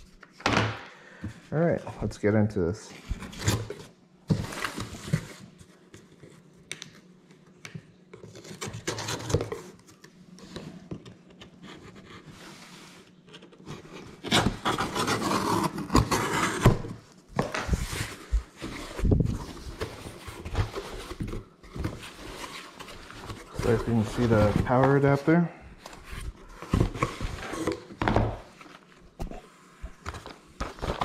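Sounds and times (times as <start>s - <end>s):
knife cutting cardboard box: 13.6s - 17.0s.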